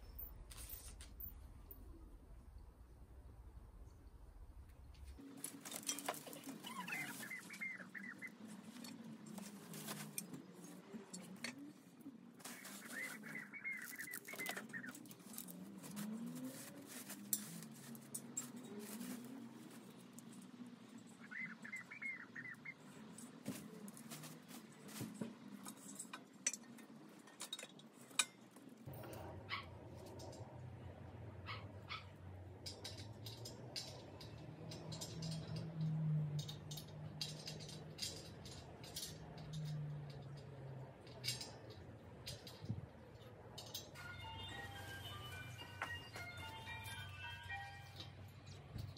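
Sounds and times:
clicks and knocks of handling: 23.1 - 29.2, 32.5 - 44.0.

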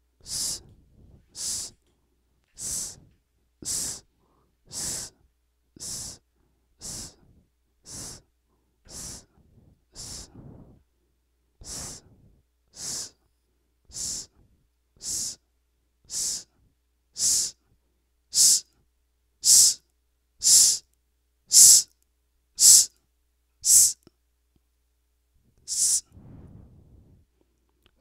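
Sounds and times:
man hissing into a microphone: 0.2 - 1.8, 2.6 - 4.1, 4.7 - 5.2, 5.8 - 6.2, 6.8 - 8.3, 8.9 - 10.8, 11.6 - 13.2, 13.9 - 14.4, 15.0 - 15.4, 16.1 - 16.6, 17.2 - 17.6, 18.3 - 18.7, 19.4 - 19.8, 20.4 - 20.8, 21.5 - 21.9, 22.6 - 22.9, 23.6 - 24.0, 25.7 - 27.1.

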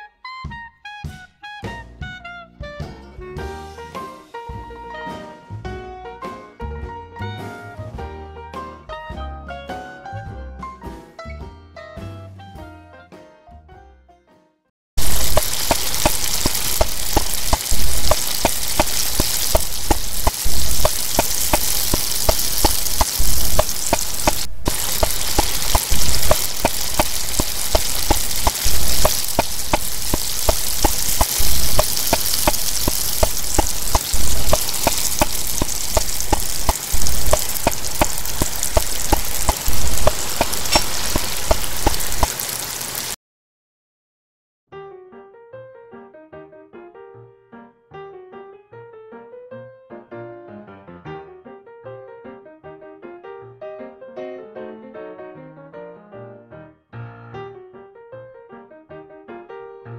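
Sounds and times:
food sizzling in a pan: 15.0 - 43.2.

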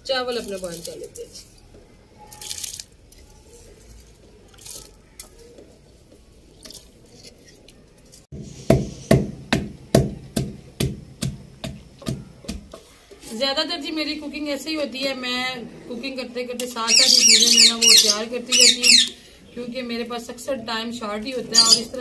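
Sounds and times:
pestle pounding in a mortar: 8.4 - 12.8.

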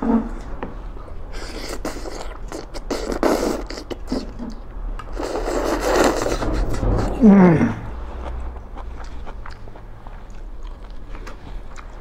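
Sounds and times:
noodles being slurped: 1.4 - 4.4, 5.1 - 6.4.

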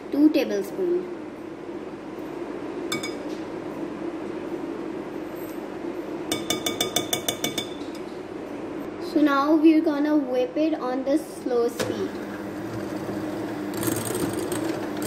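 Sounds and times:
steady low hum: 0.0 - 15.0
metal spoon clinking glass: 2.9 - 3.2, 6.3 - 8.0.

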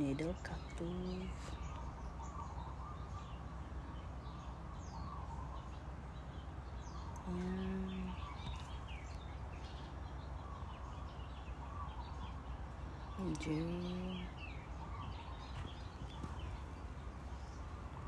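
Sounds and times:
low background hum: 0.0 - 18.0
small birds chirping: 0.0 - 18.0.

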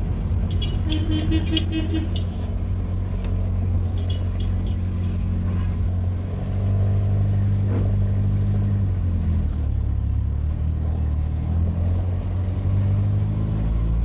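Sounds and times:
car engine hum from inside cabin: 0.0 - 14.0.

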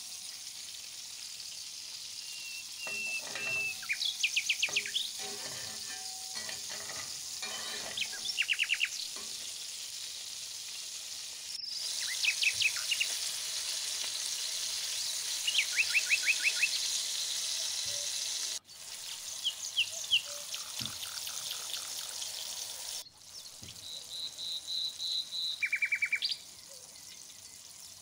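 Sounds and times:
cutlets sizzling in oil: 0.0 - 28.0
bird chirping: 2.2 - 9.2.

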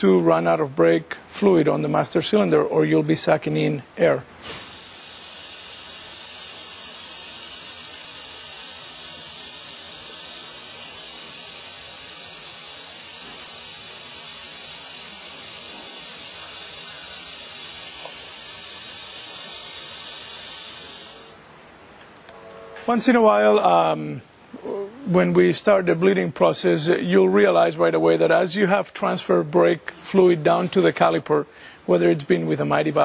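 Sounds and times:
vacuum brake bleeder hissing: 4.4 - 21.5.

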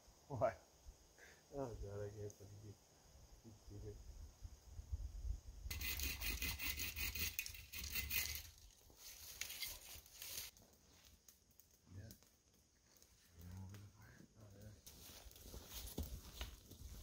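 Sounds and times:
hand saw cutting wood: 5.7 - 8.6.

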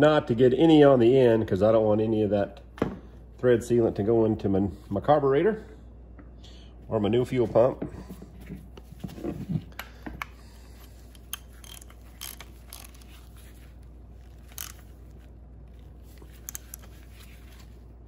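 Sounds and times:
hand tools clicking and scraping: 9.2 - 14.9, 16.1 - 17.5.

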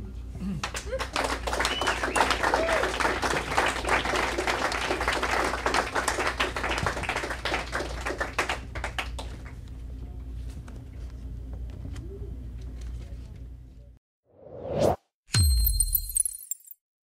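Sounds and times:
audience applauding: 0.6 - 9.6.

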